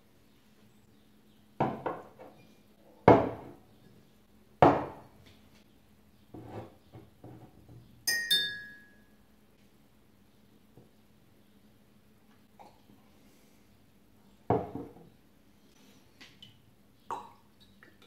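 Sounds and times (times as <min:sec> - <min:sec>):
glass ringing when tapped: 0:08.1 - 0:09.1.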